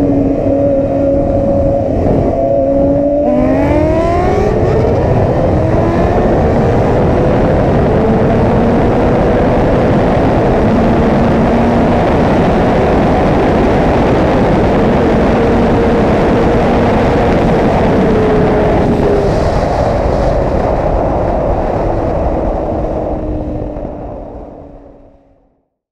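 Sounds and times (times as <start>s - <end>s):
motorcycle engine at high revs: 0.0s - 19.6s
heavy wind rush: 0.0s - 25.6s.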